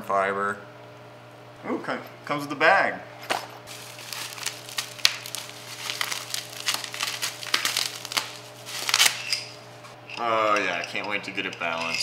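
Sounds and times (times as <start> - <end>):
bubble wrap crinkling: 3.7 - 9.6.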